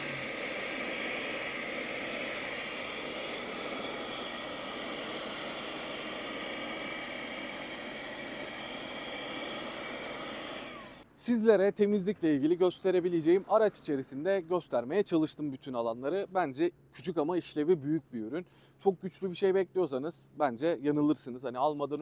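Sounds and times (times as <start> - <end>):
handheld vacuum cleaner whining: 0.0 - 11.1.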